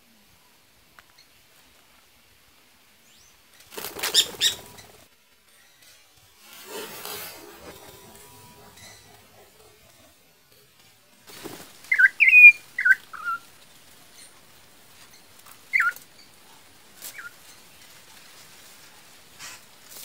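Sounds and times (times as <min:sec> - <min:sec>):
bird wings flapping: 0:03.6 - 0:05.1, 0:11.2 - 0:14.0.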